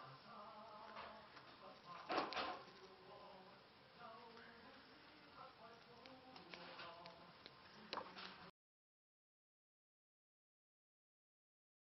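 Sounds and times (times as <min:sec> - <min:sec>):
faint room sound: 0:00.0 - 0:08.5.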